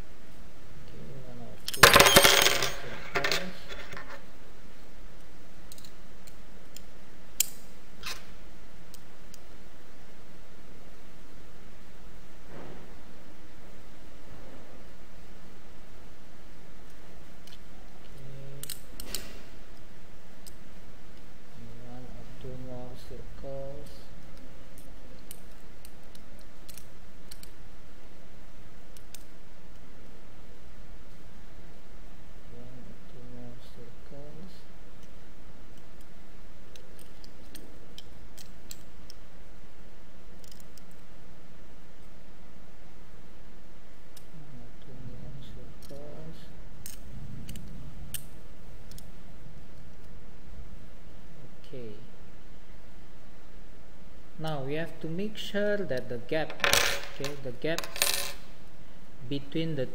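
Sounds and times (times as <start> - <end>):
low hum: 0.0 - 57.6
metal tools clinking: 1.6 - 4.2
allen key clicking on screws: 40.4 - 41.0.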